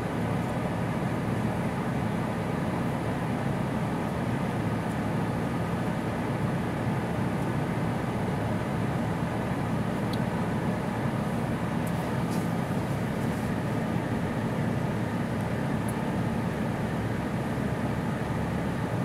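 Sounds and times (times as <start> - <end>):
distant engine drone at low revs: 0.0 - 19.0.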